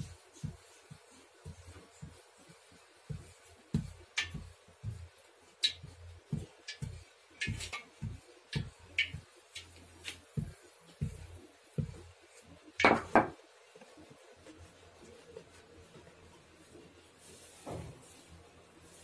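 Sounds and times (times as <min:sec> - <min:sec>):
rolling pin thudding on dough: 0:00.0 - 0:13.4.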